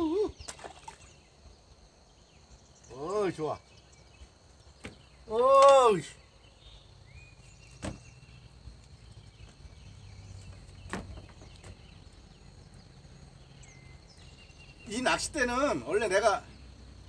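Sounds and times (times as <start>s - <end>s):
faint bird chirps: 0.0s - 16.8s
sharp knocks: 7.8s - 8.0s.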